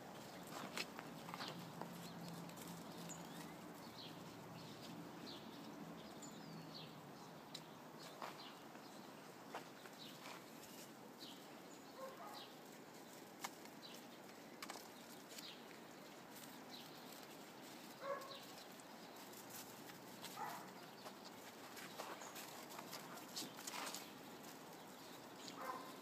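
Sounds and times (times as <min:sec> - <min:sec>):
scuffs and clicks on snow: 0:00.4 - 0:03.5, 0:16.3 - 0:24.8
puppies yipping: 0:18.0 - 0:18.5, 0:20.2 - 0:20.9, 0:25.5 - 0:26.0.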